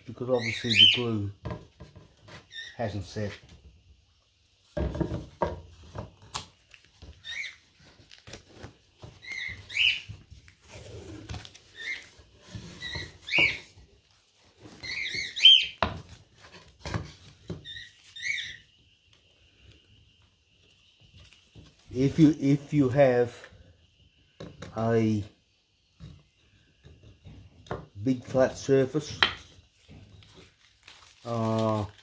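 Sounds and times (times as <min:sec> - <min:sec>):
bird chirping: 0:00.0 - 0:01.2, 0:02.4 - 0:03.3, 0:07.2 - 0:07.7, 0:09.0 - 0:10.2, 0:11.7 - 0:13.8, 0:14.6 - 0:15.9, 0:17.5 - 0:19.7.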